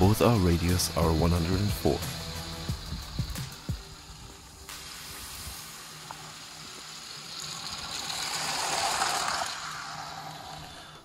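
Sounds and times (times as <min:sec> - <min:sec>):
toy train wheels rattling on track: 0:00.0 - 0:04.6, 0:05.6 - 0:11.0
low motor hum: 0:00.0 - 0:04.7.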